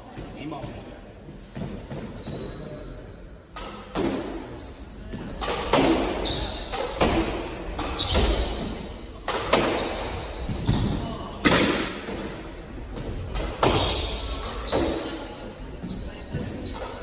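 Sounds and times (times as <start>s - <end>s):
sneakers squeaking on wooden floor: 0.1s - 3.8s, 4.4s - 8.8s, 9.5s - 17.0s
squash ball hits echoing: 3.5s - 15.3s.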